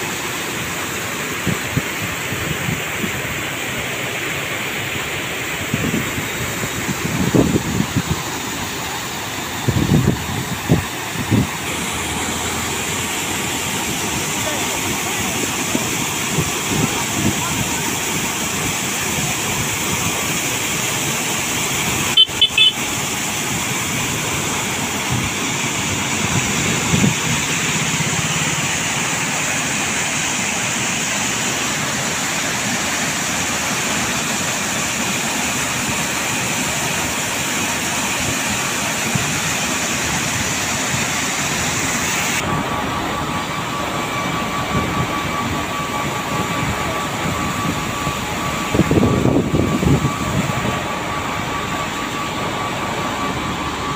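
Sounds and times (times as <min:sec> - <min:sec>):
pump machinery whine: 0:00.0 - 0:53.9
water jets pouring into canal: 0:00.0 - 0:53.9
short horn toot: 0:22.2 - 0:22.8.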